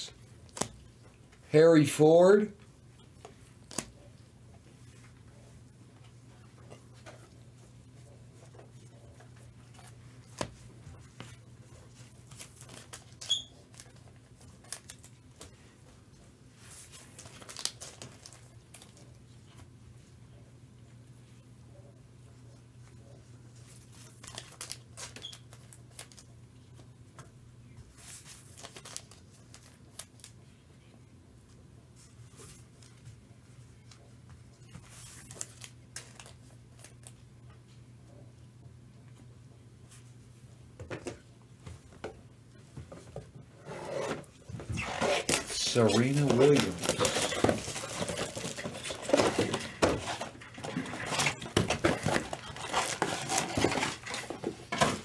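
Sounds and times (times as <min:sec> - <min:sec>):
cards scraping and clicking: 0:43.9 - 0:54.4.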